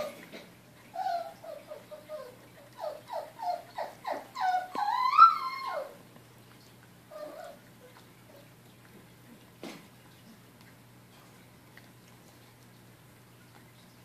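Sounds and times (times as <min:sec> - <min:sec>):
puppy whining: 0:00.0 - 0:06.1, 0:07.1 - 0:08.5.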